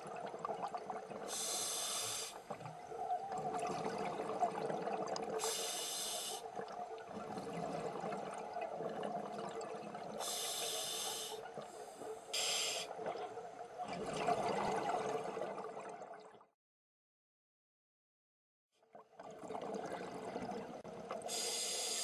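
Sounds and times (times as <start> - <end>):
gurgle of exhaled bubbles: 0.0 - 1.5, 2.4 - 5.6, 6.5 - 10.4, 12.9 - 16.5, 19.1 - 21.1
regulator hissing inhalations: 1.3 - 2.4, 5.4 - 6.5, 10.2 - 12.9, 21.3 - 22.0.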